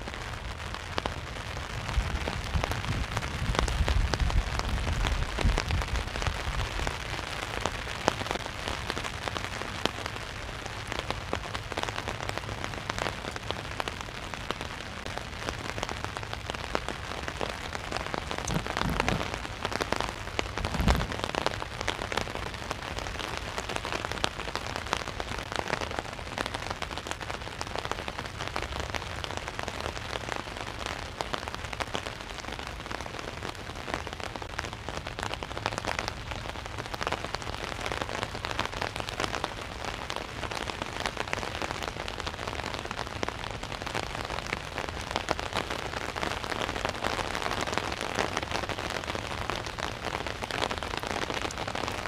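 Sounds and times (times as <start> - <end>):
heavy rain on an umbrella: 0.0 - 52.0
low rumble: 18.4 - 19.7, 20.4 - 21.7
short low thumps: 20.6 - 21.5.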